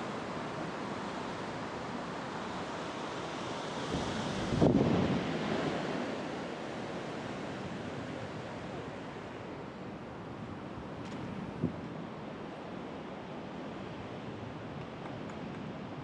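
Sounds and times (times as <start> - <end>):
ocean surf on beach: 0.0 - 16.0
wind on microphone: 3.9 - 5.5.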